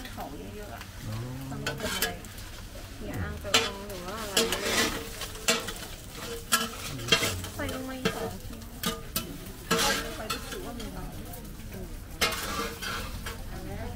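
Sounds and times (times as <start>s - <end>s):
faint voices: 0.5s - 2.4s, 3.0s - 4.6s, 6.8s - 8.8s
metal utensils scraping a pan: 3.3s - 13.9s.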